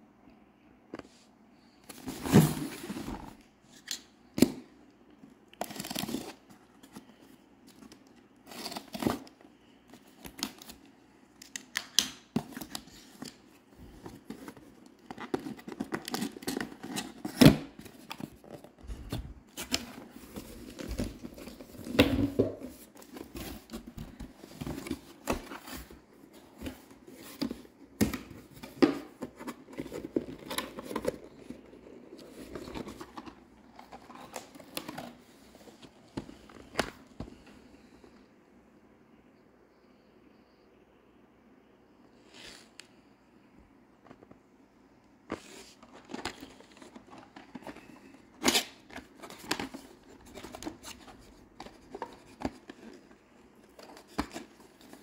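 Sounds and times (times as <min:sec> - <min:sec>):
cardboard box being handled: 0:02.0 - 0:03.4.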